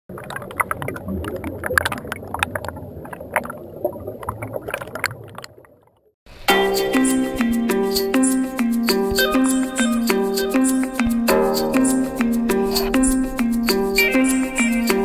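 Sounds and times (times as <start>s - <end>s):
air bubbles churning underwater: 0.1s - 6.1s
music: 6.4s - 15.0s.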